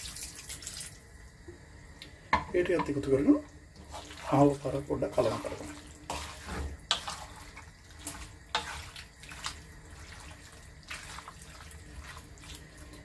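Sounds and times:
wet squelching in a wok: 0:00.0 - 0:13.0.

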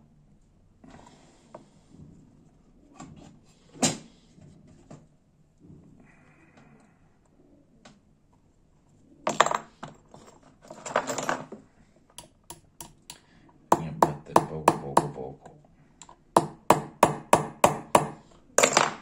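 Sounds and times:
small hammer tapping metal pin: 0:12.2 - 0:15.2, 0:16.0 - 0:18.2.

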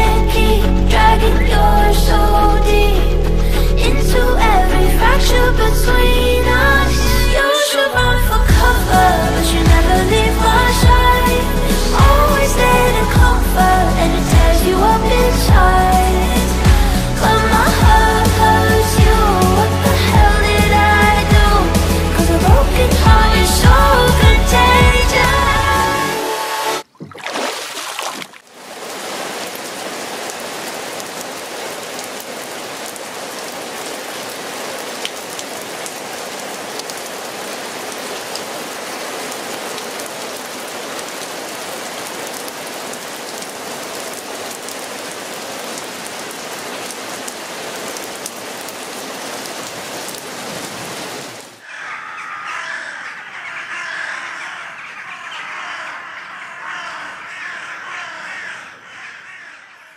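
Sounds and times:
heavy rain on water and boards: 0:06.9 - 0:26.0, 0:26.8 - 0:51.7
crows cawing: 0:51.6 - 0:59.9.

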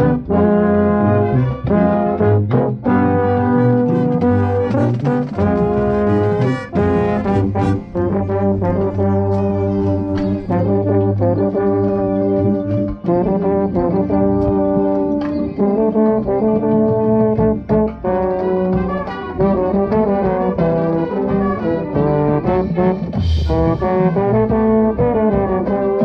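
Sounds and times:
brass chords: 0:00.0 - 0:26.0
marching baritone: 0:00.0 - 0:26.0
sharp percussion hits: 0:22.9 - 0:25.4.

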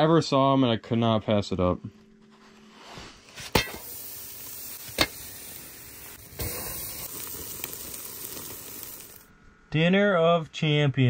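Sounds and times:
coals popping: 0:03.3 - 0:09.3
steak sizzling on grill: 0:03.6 - 0:09.3.

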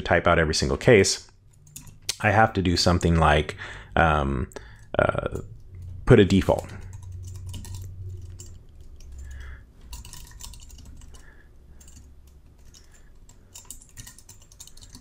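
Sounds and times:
low steady hum: 0:00.0 - 0:15.0
typing on computer keyboard: 0:01.6 - 0:02.1, 0:06.5 - 0:15.0.

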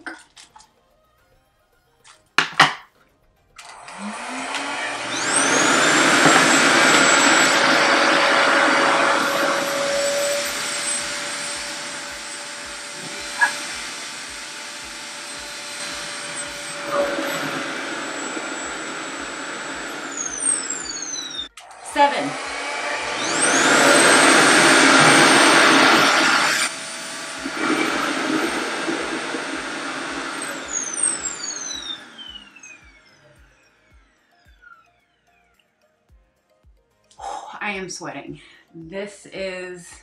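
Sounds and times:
hair dryer motor whining: 0:03.6 - 0:35.6.

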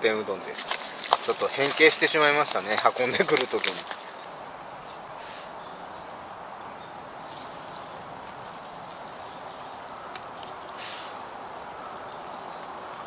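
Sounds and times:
short hiss: 0:05.2 - 0:05.6, 0:10.7 - 0:11.2.

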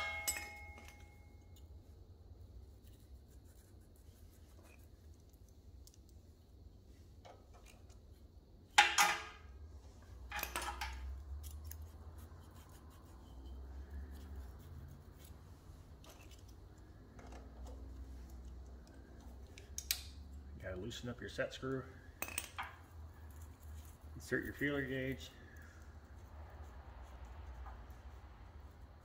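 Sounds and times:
sharp metallic clinks: 0:00.0 - 0:01.6
metal tools clicking and scraping: 0:00.0 - 0:01.7, 0:08.8 - 0:09.4, 0:10.2 - 0:14.2, 0:15.2 - 0:20.3, 0:22.2 - 0:24.0.

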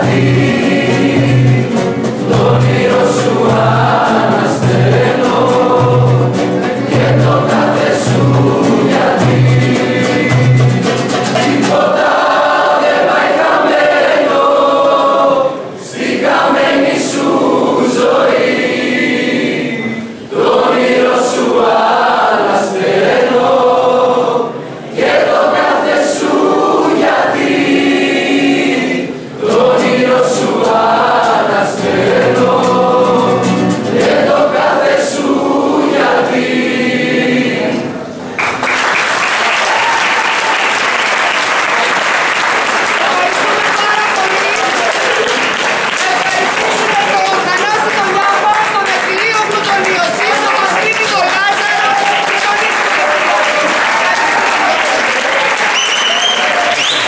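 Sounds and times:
strummed acoustic guitar: 0:00.0 - 0:12.1, 0:29.4 - 0:34.8
group of voices singing: 0:00.0 - 0:38.3.

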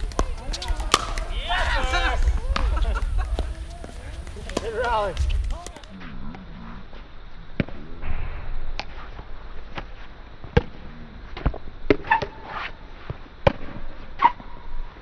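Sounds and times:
paddles striking plastic ball: 0:00.0 - 0:01.3
ball bouncing on court: 0:00.0 - 0:01.4.

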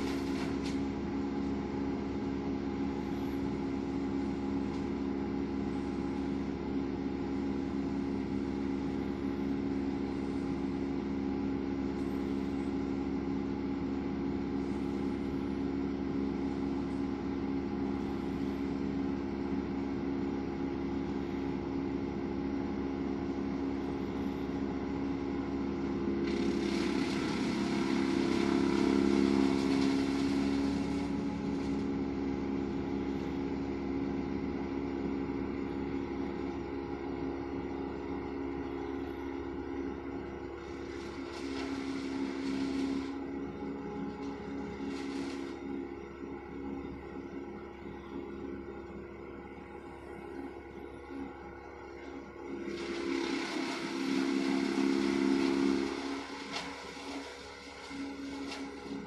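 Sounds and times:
muffled wood chipper engine: 0:00.0 - 0:59.0
harsh grinding noise: 0:26.2 - 0:31.8, 0:40.6 - 0:43.2.

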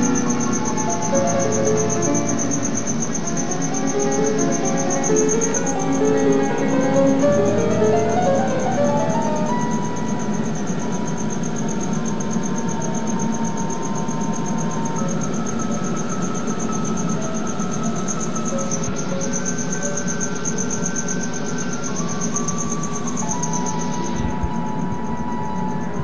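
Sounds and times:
fast high-pitched pulsing: 0:00.0 - 0:19.3
slow piano notes: 0:00.0 - 0:26.0.

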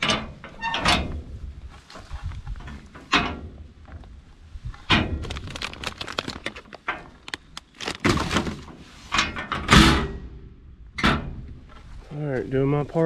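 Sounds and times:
trash bag crackling: 0:05.2 - 0:08.7.

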